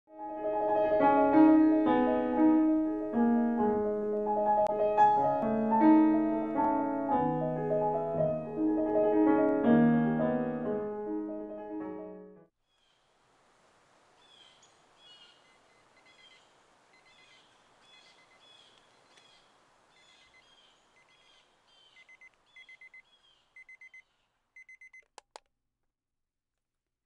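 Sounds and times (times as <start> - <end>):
bird chirping: 14.2 - 25.0
alarm clock beeping: 23.6 - 24.0.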